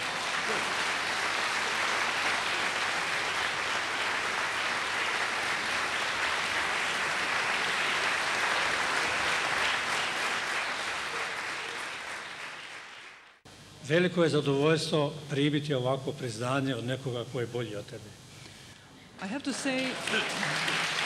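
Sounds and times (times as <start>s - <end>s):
audience applauding: 0.0s - 13.4s, 19.5s - 21.0s.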